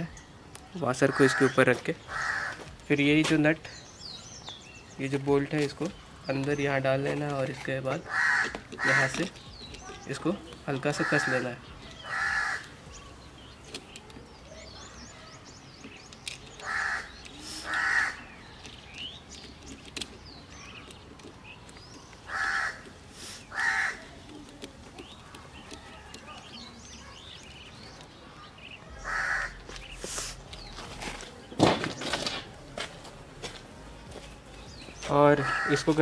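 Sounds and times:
small birds chirping: 0.0s - 36.0s
crow cawing: 1.1s - 2.7s, 8.0s - 9.2s, 11.0s - 12.8s, 16.6s - 18.2s, 22.3s - 22.9s, 23.5s - 24.2s, 28.3s - 29.6s, 35.4s - 36.0s.

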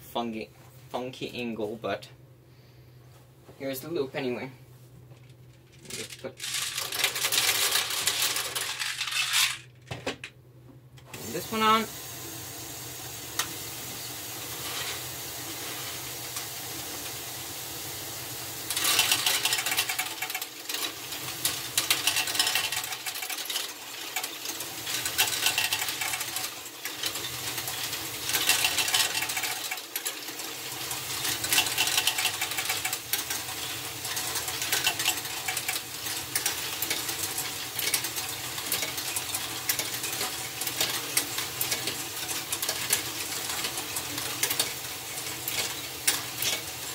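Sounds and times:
plastic balls clicking and rattling: 5.2s - 10.3s, 18.7s - 46.9s
electric motors and gears whirring: 5.8s - 9.9s, 11.0s - 46.9s.

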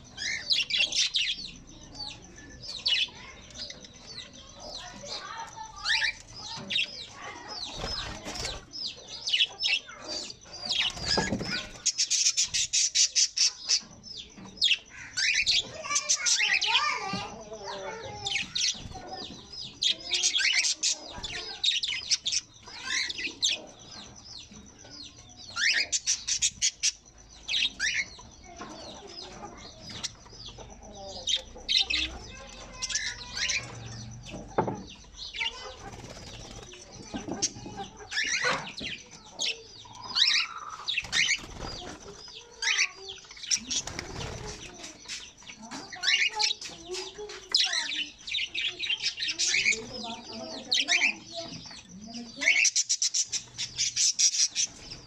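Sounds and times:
parrots chirping: 0.0s - 55.0s
wings flapping: 7.2s - 8.7s, 35.4s - 37.3s, 40.8s - 42.4s, 43.4s - 45.0s.

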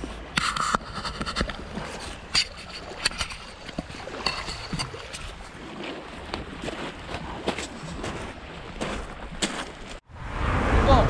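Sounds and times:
small waves washing: 0.0s - 11.0s
fishing tackle clicking and clattering: 0.3s - 5.6s.

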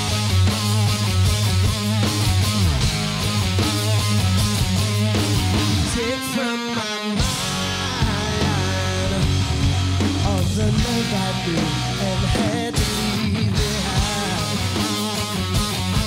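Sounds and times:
rock band playing: 0.0s - 16.0s
man singing: 5.8s - 16.0s.

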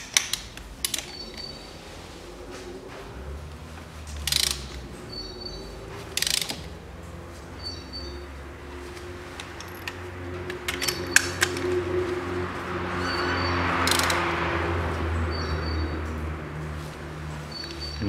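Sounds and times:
ratchet wrench clicking: 4.2s - 4.8s, 6.2s - 6.7s, 13.8s - 14.2s.

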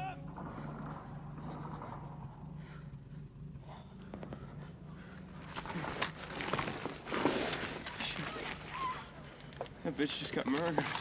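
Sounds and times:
faint low hum: 0.0s - 11.0s
gear rustling and scuffing: 5.4s - 9.8s.

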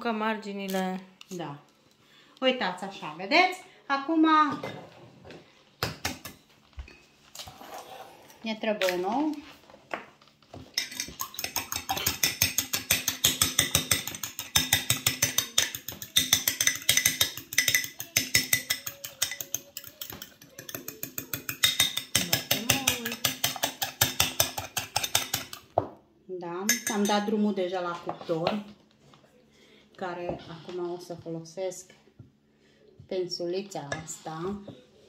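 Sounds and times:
fork beating egg in glass bowl: 10.8s - 25.6s.

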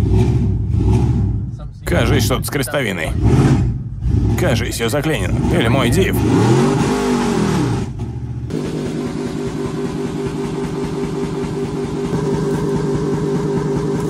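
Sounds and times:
low rhythmic throb: 0.0s - 14.0s
truck engine droning: 0.0s - 14.0s.

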